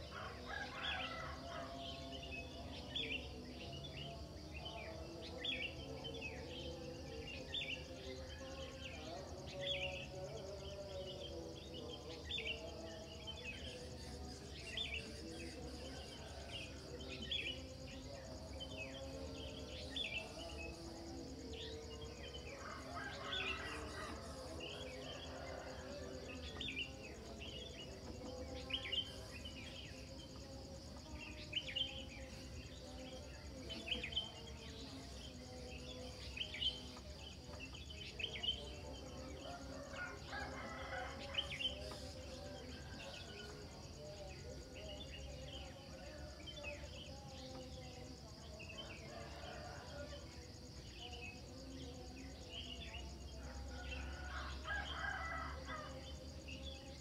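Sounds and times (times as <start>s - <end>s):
high insect trill: 0.0s - 57.0s
songbirds chirping: 0.0s - 57.0s
rooster crowing: 39.4s - 41.8s, 53.4s - 56.0s.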